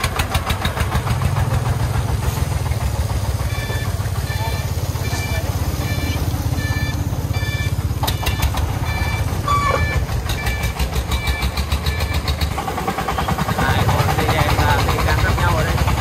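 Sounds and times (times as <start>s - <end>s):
diesel truck engine chugging: 0.0s - 16.0s
short electronic beep: 3.5s - 12.2s.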